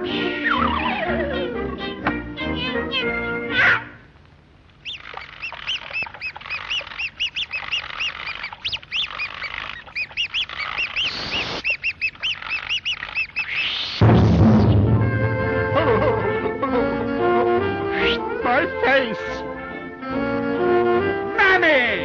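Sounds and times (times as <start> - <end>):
cartoon squeaking chirps: 0.1 - 1.6, 2.4 - 4.0, 4.8 - 14.1.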